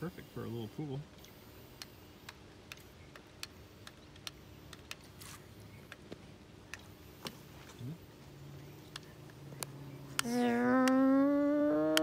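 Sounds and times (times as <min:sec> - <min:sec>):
faint steady hum: 0:00.0 - 0:12.0
faint sharp clicks: 0:01.2 - 0:05.1, 0:08.8 - 0:11.1.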